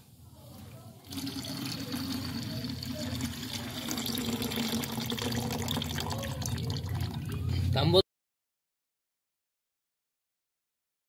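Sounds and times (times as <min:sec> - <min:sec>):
liquid pouring into bucket: 0:01.0 - 0:07.6.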